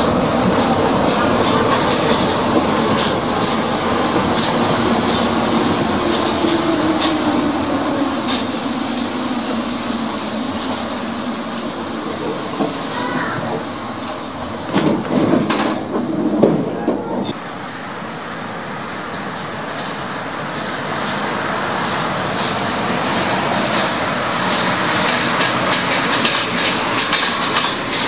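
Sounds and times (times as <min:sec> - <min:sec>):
light clicks of train: 0:00.0 - 0:17.1, 0:18.7 - 0:28.0
train rolling noise: 0:00.0 - 0:28.0.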